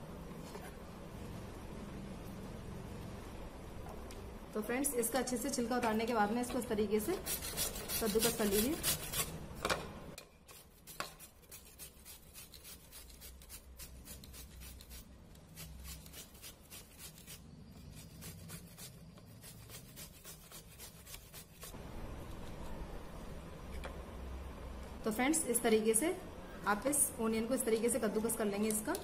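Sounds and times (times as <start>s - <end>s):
onion grated on metal grater: 7.0s - 9.4s, 10.4s - 21.8s.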